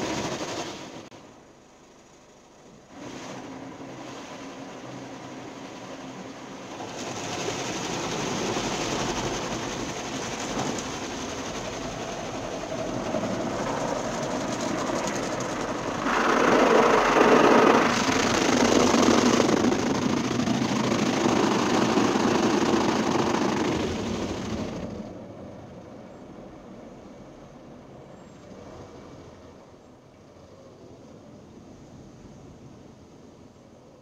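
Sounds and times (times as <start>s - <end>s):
car wash machinery running: 0.0s - 1.5s, 2.4s - 25.9s
water spray hitting a car: 13.4s - 25.1s.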